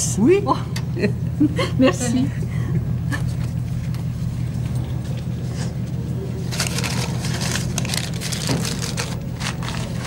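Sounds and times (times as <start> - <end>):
steady low hum: 0.0 - 10.0
paper and cloth rustling: 6.4 - 10.0.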